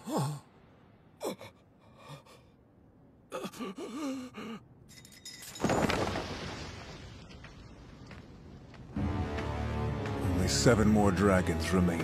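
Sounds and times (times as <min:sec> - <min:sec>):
cartoon man gasping and groaning: 0:00.0 - 0:04.8.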